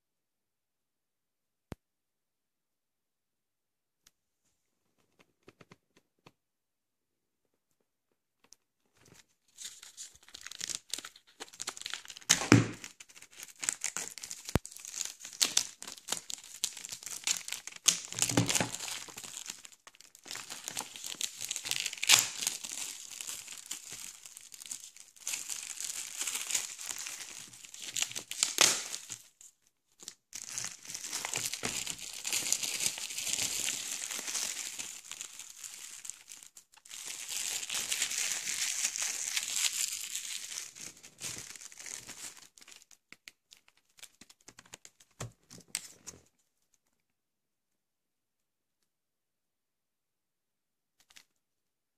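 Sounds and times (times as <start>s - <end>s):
bubble wrap crinkling: 9.0s - 46.3s.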